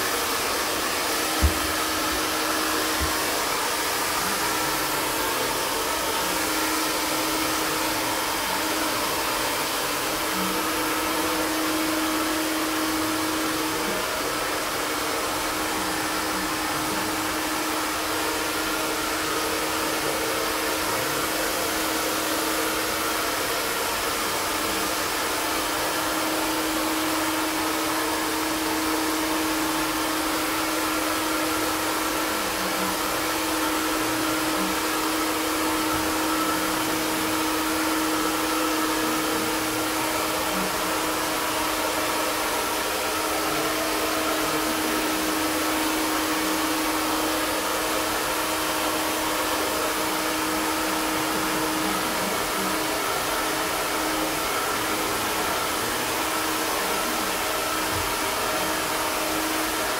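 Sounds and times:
handheld blower rushing air: 0.0 - 59.9.

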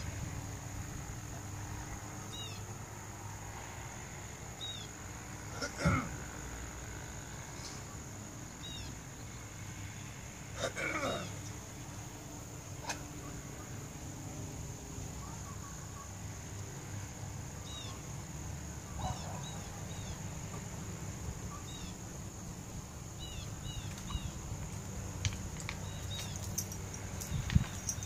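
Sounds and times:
bird chirping: 8.6 - 9.4, 23.2 - 24.5, 25.8 - 28.0
wind on microphone: 27.2 - 28.0.

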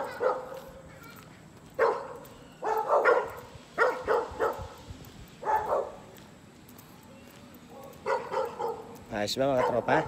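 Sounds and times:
dog barking: 0.0 - 0.6, 1.8 - 4.7, 5.4 - 6.0, 8.0 - 8.9, 9.5 - 10.0.

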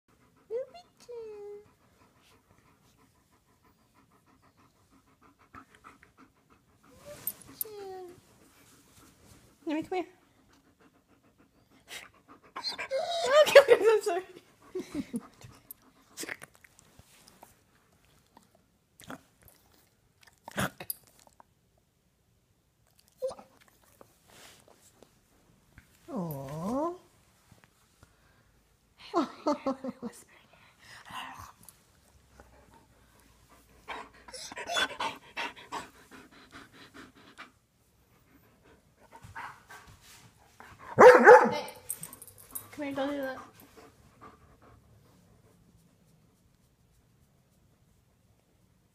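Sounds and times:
dog panting: 0.1 - 16.2, 32.2 - 41.4, 42.1 - 46.4.

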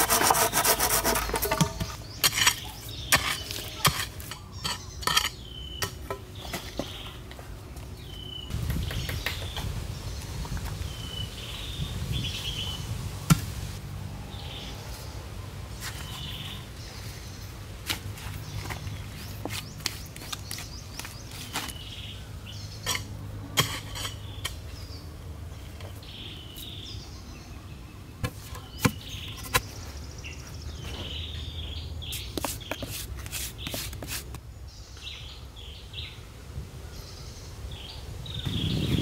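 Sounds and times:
digging in stony soil: 0.0 - 6.0, 17.8 - 22.1, 22.8 - 24.8, 32.0 - 34.4
birds chirping: 0.0 - 13.1, 14.2 - 39.0.

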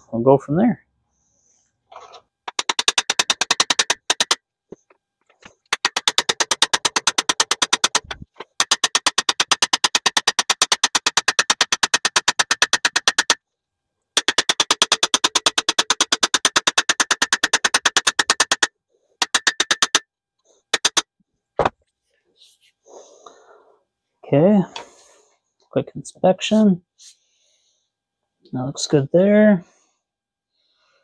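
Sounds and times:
rapid metallic strikes: 2.5 - 4.4, 5.6 - 13.4, 14.2 - 20.0, 20.7 - 21.0.

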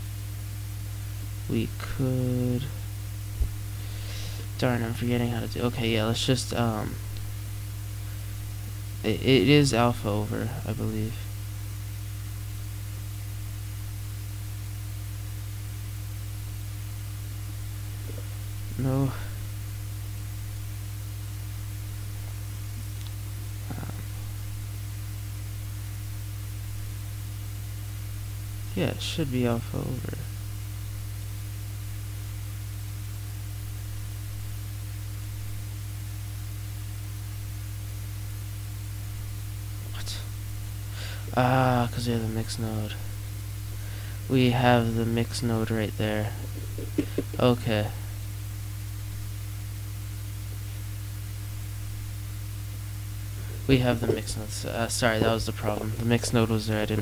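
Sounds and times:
low electrical hum with hiss: 0.0 - 57.0.

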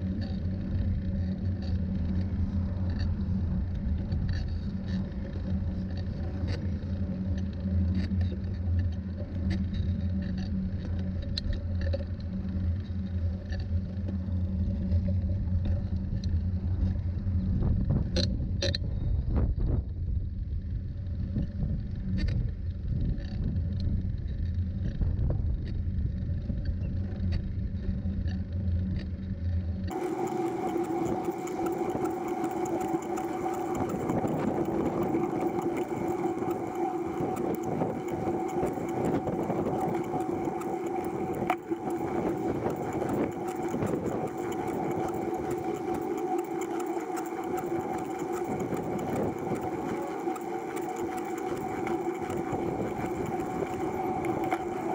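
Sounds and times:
mechanical whine: 0.0 - 54.9
wind and road rumble: 16.8 - 27.7.

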